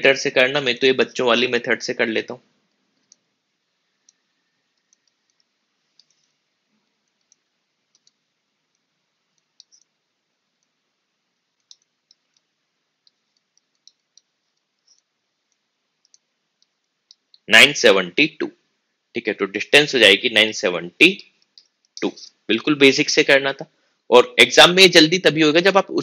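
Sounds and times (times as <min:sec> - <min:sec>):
faint clicks on a screen: 0:04.0 - 0:10.0, 0:11.4 - 0:17.4.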